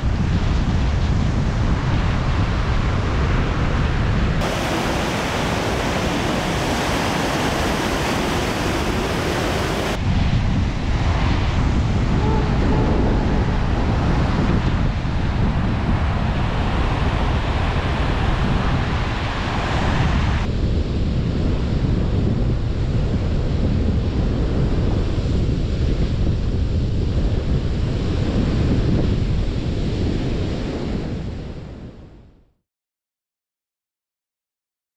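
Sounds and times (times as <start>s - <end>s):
ocean surf on sandy beach: 0.0s - 22.0s
wind noise on microphone: 0.0s - 32.6s.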